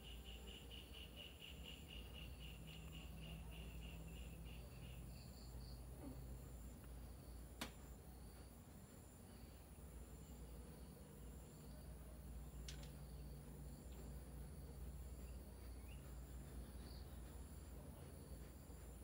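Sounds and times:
faint insect chirping: 0.0s - 19.0s
steady low hum: 0.0s - 19.0s.

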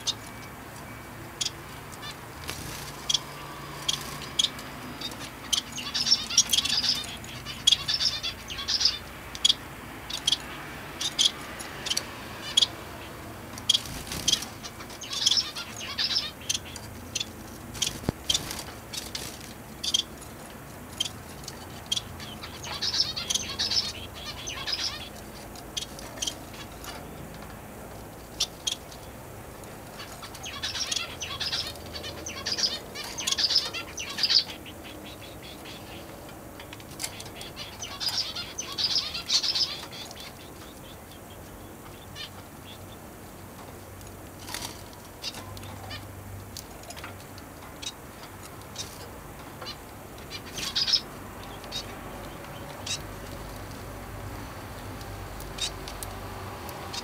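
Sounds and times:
finch chirping: 0.0s - 20.2s, 20.9s - 27.2s, 28.3s - 29.1s, 29.8s - 43.1s, 44.4s - 46.2s, 46.8s - 53.8s, 55.5s - 56.1s
wing flutters: 2.2s - 5.3s, 13.6s - 15.0s.

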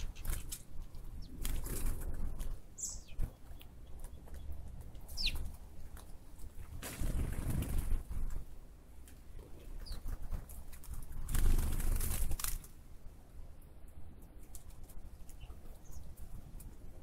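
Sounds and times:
high bird chirps: 2.8s - 5.5s.

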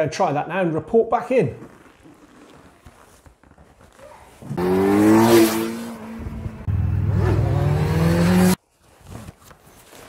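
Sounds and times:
motorcycle engine accelerating: 4.5s - 8.6s.

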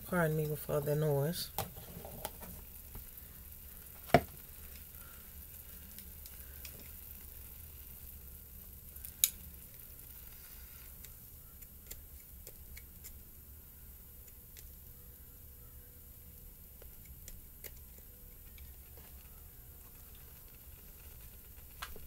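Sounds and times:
water heating hiss: 0.0s - 22.0s.

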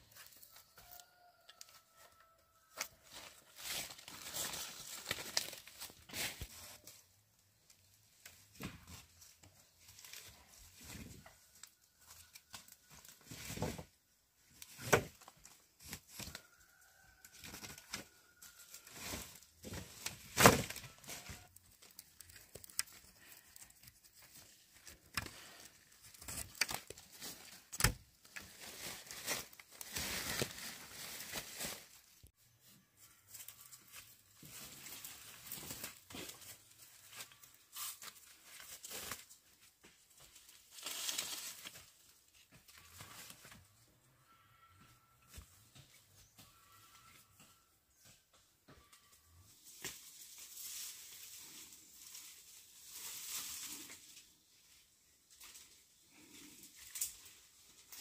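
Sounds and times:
rustling crackling and tearing: 2.7s - 7.1s, 14.6s - 32.3s, 33.2s - 43.6s, 49.6s - 58.0s.

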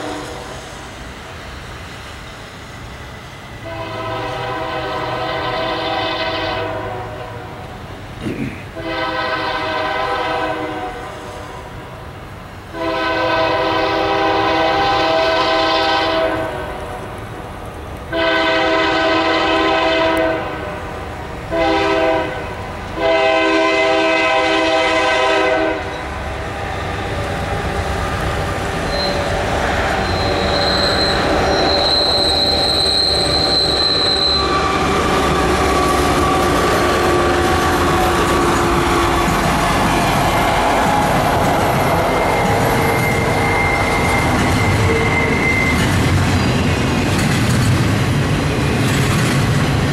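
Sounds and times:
locomotive air horn blasts: 0.0s - 0.5s, 3.6s - 7.6s, 8.8s - 11.6s, 12.7s - 16.8s, 18.1s - 26.1s, 42.1s - 45.6s
train rolling past rumble: 0.0s - 49.9s
thin high-pitched squeal: 28.9s - 29.4s, 30.0s - 35.1s, 42.1s - 46.6s.

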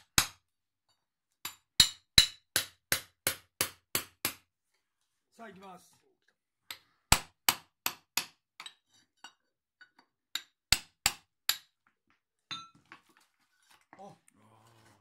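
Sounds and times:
hammer striking chisel on stone: 1.4s - 4.4s, 6.7s - 8.9s, 9.8s - 11.9s.

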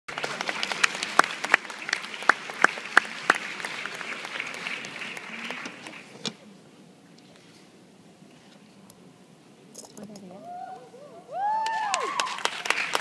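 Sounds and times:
loud close hand claps: 0.1s - 6.1s, 11.6s - 13.0s
audience applauding: 0.1s - 6.2s, 11.4s - 13.0s.

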